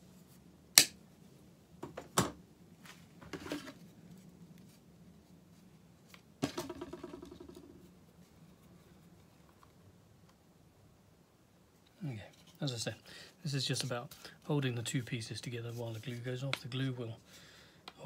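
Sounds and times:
hard object clattering: 6.4 - 7.8.

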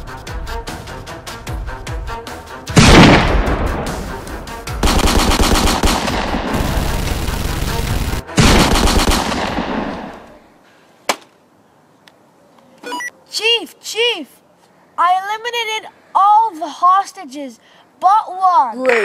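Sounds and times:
automatic gunfire: 4.8 - 10.2.

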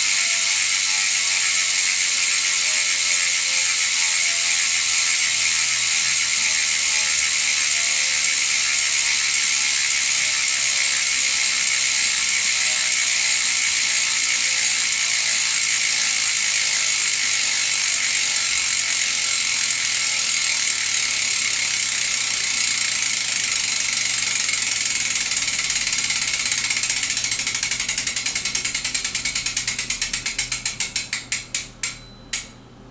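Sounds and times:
bicycle freehub clicking: 0.0 - 32.6.

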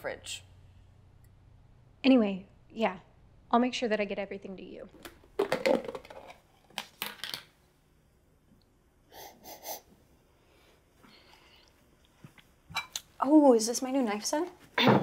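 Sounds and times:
person sniffing: 9.1 - 9.9.

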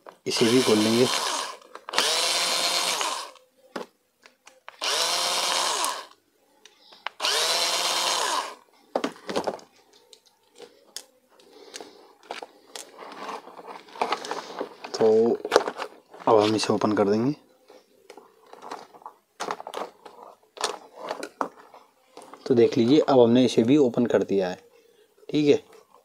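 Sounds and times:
electric screwdriver whirring: 0.3 - 3.4, 4.8 - 6.2, 7.2 - 8.6.

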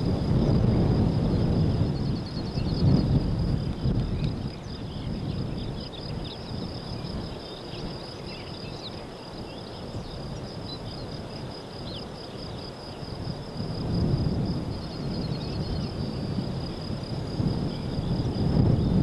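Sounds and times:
insects chirring: 0.0 - 19.0
wind buffeting microphone: 0.0 - 19.0
faint bird chirps: 3.9 - 13.0.

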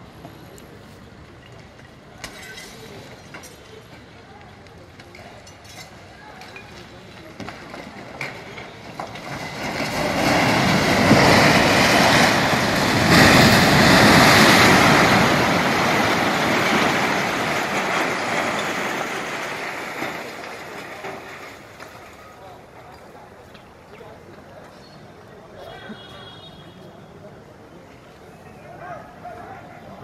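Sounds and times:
concrete building collapsing: 1.2 - 24.8.

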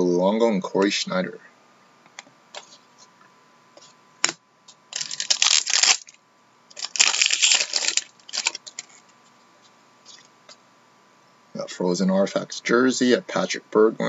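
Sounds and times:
wrapper tearing and crinkling: 4.9 - 9.0
card pack wrapper click: 5.0 - 9.0.

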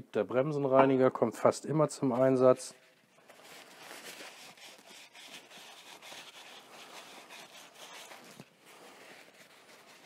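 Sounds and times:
paper scrubbing on metal: 3.2 - 10.0.

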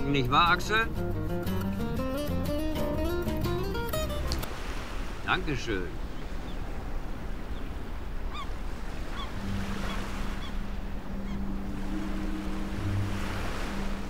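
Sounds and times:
surf: 0.0 - 14.0
wind: 0.0 - 14.0
bird calls: 6.0 - 6.7, 7.4 - 14.0
low steady tone: 10.6 - 14.0.

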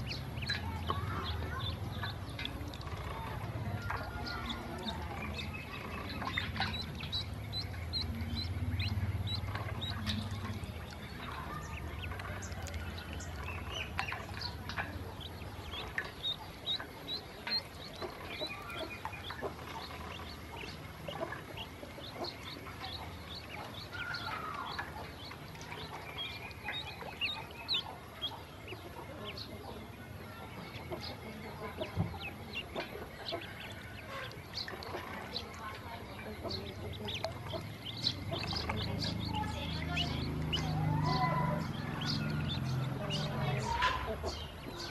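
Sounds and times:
ducklings peeping: 0.0 - 44.9
low rumble: 5.3 - 12.2.

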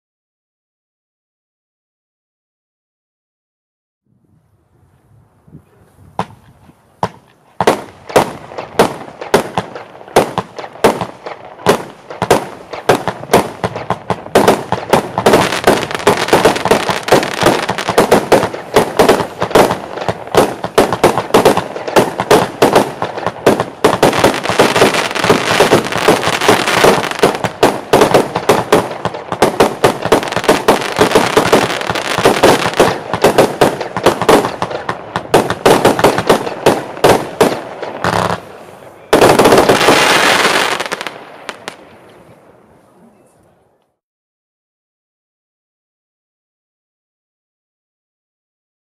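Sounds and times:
firework battery shots: 7.0 - 41.8.

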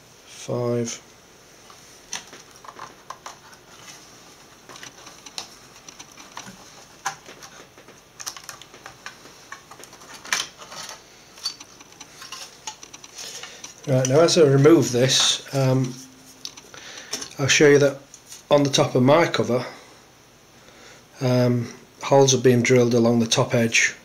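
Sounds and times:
metal parts clicking and tapping: 4.7 - 7.3, 8.2 - 14.2.

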